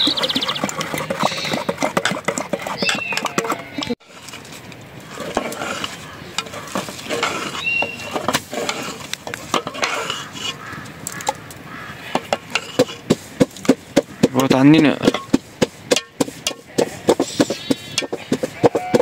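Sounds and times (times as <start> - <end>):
ladle scraping a pot: 0.0 - 11.4, 12.0 - 13.7.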